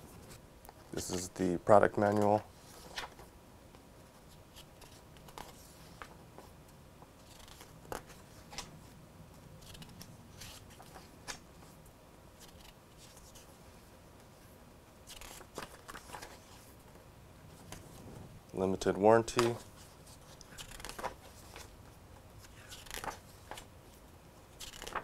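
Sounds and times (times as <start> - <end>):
paper pages rustling and turning: 0.1 - 3.3, 4.0 - 6.5, 7.2 - 8.9, 9.6 - 11.8, 12.4 - 13.6, 15.0 - 18.0, 19.3 - 25.0.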